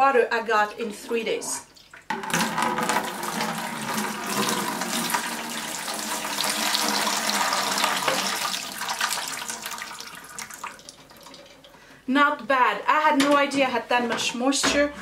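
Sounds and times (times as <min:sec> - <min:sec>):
water pouring into plastic bucket: 0:01.7 - 0:11.8.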